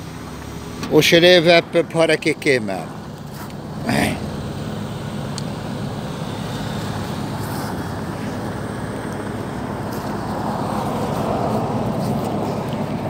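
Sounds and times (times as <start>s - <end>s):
low rumble of vehicle noise: 0.0s - 13.0s.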